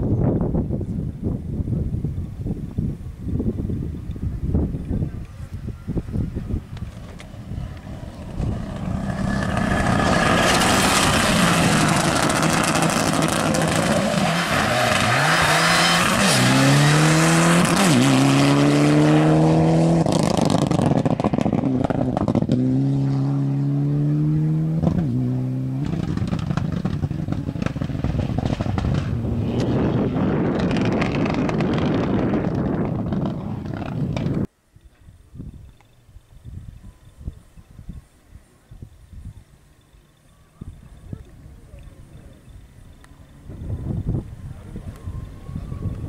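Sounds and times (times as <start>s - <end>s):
tyre and road noise: 3.5s - 34.5s
rally car engine shifting gears: 6.9s - 34.5s.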